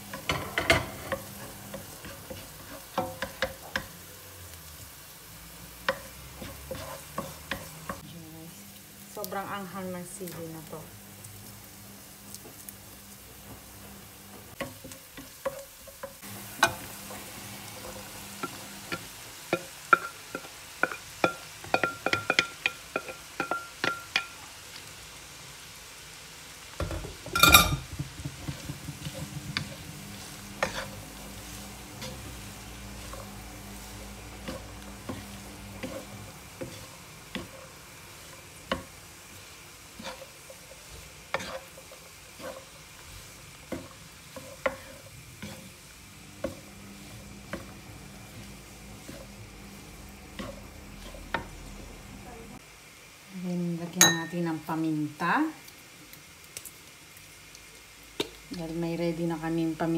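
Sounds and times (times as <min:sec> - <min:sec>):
spatula scraping and tapping pan: 0:00.0 - 0:04.1, 0:05.8 - 0:08.0, 0:13.4 - 0:24.5, 0:26.7 - 0:52.0
food sizzling in a pan: 0:00.0 - 0:59.9.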